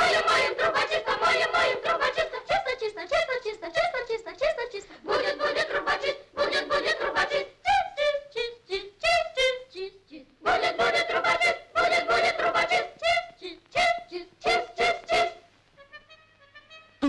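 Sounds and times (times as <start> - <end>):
chorus of high voices chanting: 0.0 - 2.8, 5.0 - 7.6, 10.4 - 13.2, 13.8 - 15.4.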